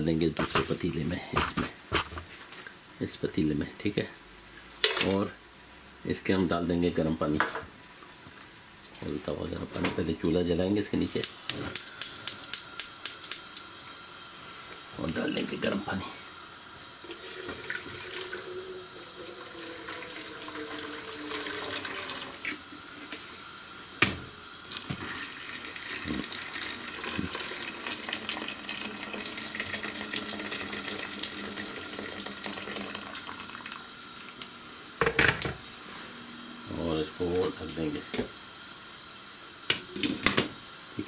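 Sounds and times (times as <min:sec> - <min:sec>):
water pouring into a pot: 0:16.9 - 0:23.4, 0:24.5 - 0:34.4.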